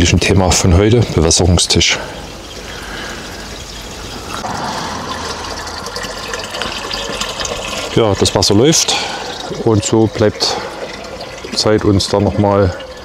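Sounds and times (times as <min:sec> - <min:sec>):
hose water pouring into barrel: 0:00.0 - 0:13.0.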